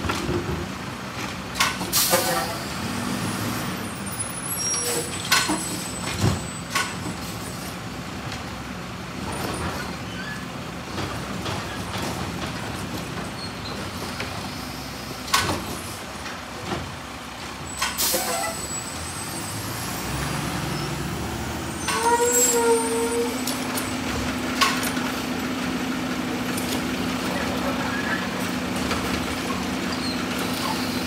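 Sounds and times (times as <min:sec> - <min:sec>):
air brakes hissing: 0:01.9 - 0:02.8, 0:17.7 - 0:21.0, 0:21.7 - 0:23.6
garbage truck engine running: 0:05.4 - 0:31.0.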